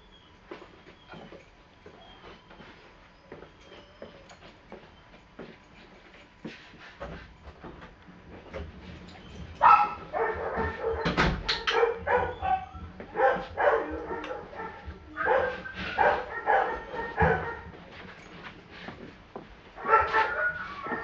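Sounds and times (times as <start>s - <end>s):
dog barking and whining: 9.6s - 17.8s, 19.8s - 21.0s.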